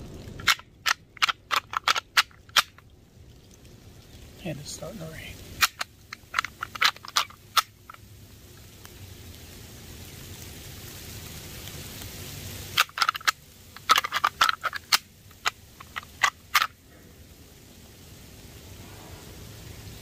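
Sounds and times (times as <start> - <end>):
light rain hissing: 0.0 - 20.0
plastic rattle clacking: 0.4 - 2.8, 5.6 - 7.8, 12.8 - 16.7.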